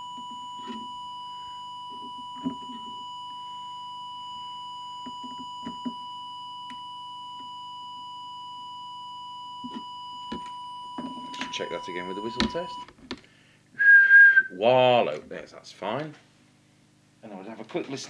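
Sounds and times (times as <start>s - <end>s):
steady test tone: 0.0s - 12.9s.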